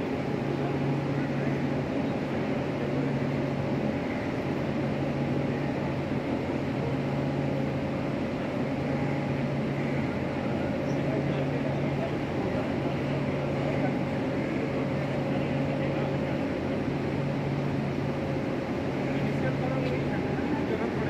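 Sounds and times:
machinery hum: 0.0s - 21.0s.

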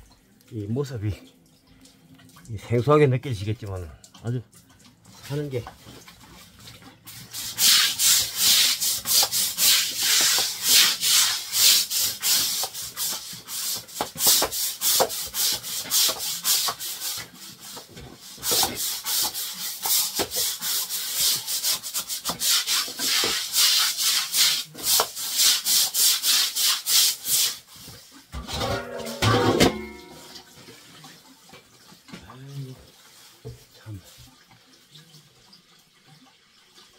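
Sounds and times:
scraping and rubbing strokes: 7.1s - 30.8s.

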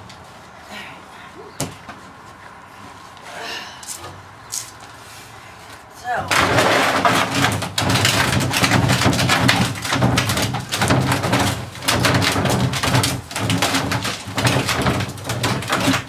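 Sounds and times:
plastic barrel scraping on concrete: 5.0s - 16.0s
rapid small knocks: 6.3s - 16.0s.

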